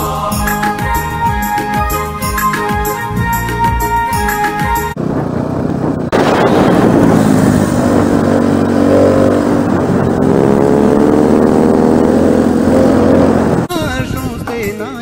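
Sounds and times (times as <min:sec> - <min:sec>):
motorcycle engine running: 0:04.9 - 0:13.7
wind and road noise: 0:04.9 - 0:14.6.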